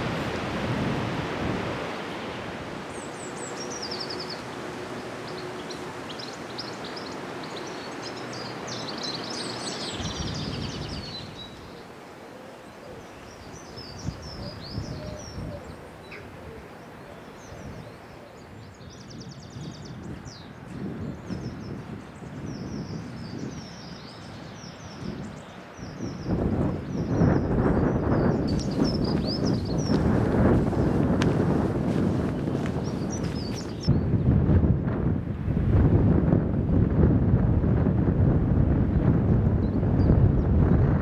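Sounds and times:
wind buffeting the microphone: 0.0 - 12.0, 12.7 - 41.0
steady outdoor rush: 0.0 - 41.0
songbirds singing and chirping: 1.8 - 34.4.

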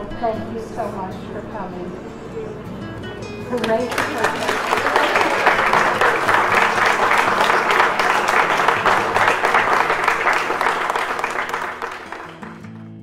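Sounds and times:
crowd applauding: 3.5 - 13.0.

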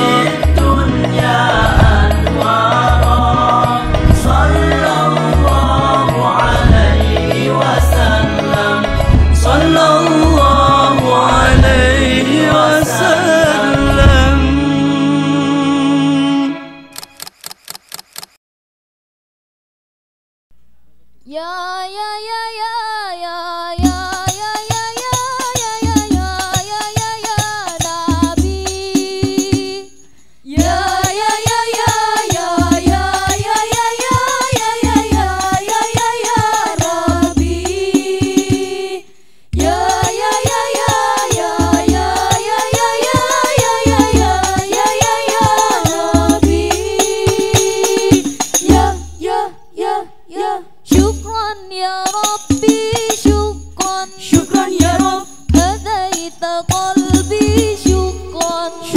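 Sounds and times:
women singing: 0.0 - 15.6, 21.3 - 58.9
frame drums beating: 0.1 - 14.6, 23.8 - 29.7, 30.6 - 38.8, 39.6 - 49.2, 52.1 - 58.6.

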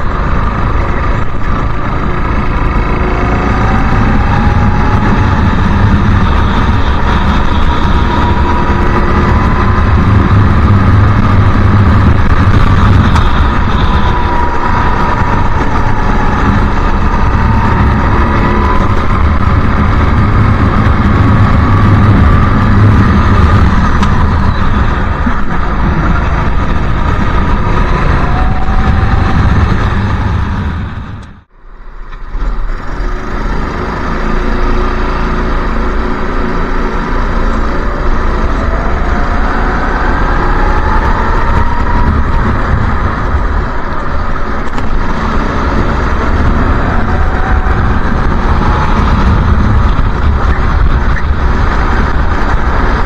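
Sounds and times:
go-kart engine running: 0.0 - 31.3, 32.2 - 53.0
track noise: 0.0 - 53.0
wind rush: 0.0 - 53.0.

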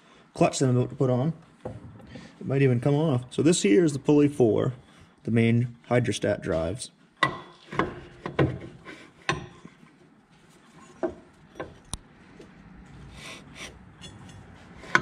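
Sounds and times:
metal knocks and clinks: 11.0 - 11.9.

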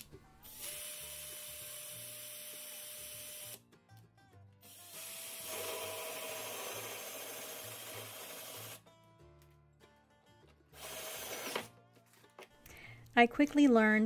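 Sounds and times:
drill hole saw cutting plastic: 0.6 - 3.6, 4.7 - 8.8, 10.8 - 11.7.

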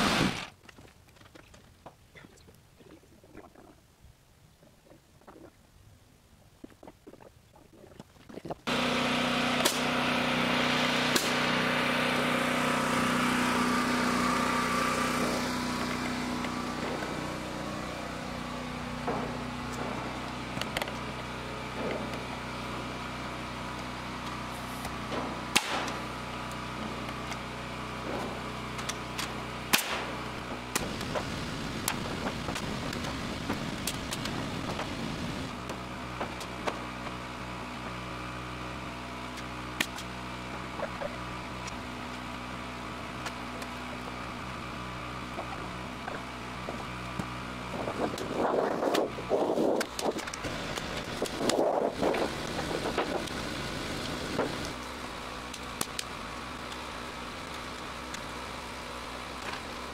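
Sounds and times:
engine running: 0.0 - 0.5, 8.6 - 59.9.

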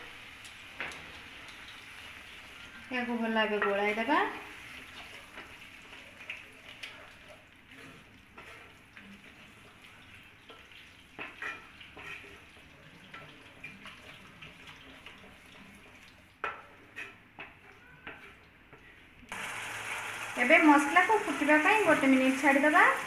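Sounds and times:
faint low sizzle: 0.0 - 23.0
wooden spatula scraping a pan: 3.5 - 18.4.

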